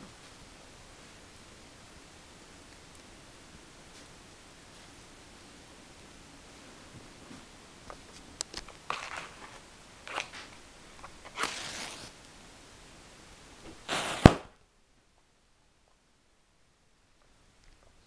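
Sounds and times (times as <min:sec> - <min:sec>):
fuse fizzing hiss: 0:00.0 - 0:14.6
short hissing scrapes: 0:13.9 - 0:14.4
cannon pop: 0:13.9 - 0:14.6.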